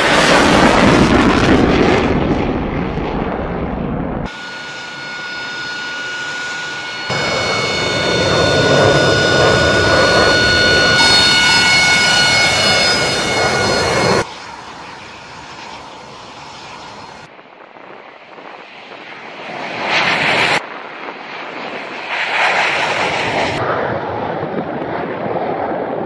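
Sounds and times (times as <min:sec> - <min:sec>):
jet engine roar in flight: 0:00.0 - 0:26.0.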